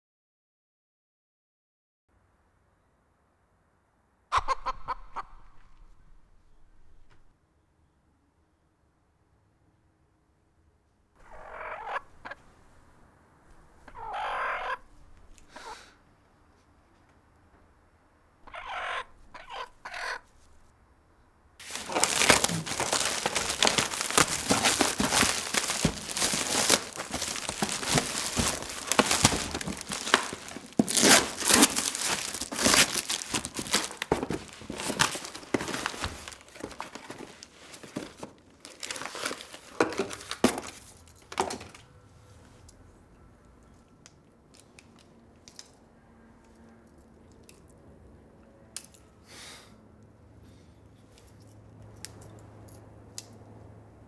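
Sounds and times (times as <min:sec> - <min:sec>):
hen calling: 0:04.3 - 0:05.6, 0:11.2 - 0:12.4, 0:13.8 - 0:15.8, 0:18.4 - 0:20.3
plastic wrap crackling: 0:21.6 - 0:40.8.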